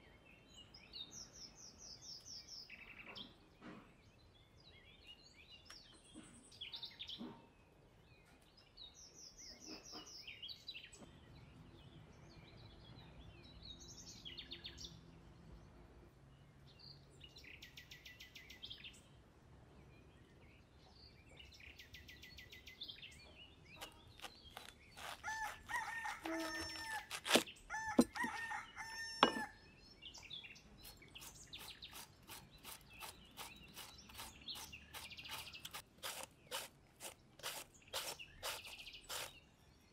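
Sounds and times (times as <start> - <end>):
small birds chirping: 0.0 - 39.9
cabbage shredding strokes: 23.8 - 28.5, 30.8 - 39.4
rooster crowing: 25.2 - 29.6.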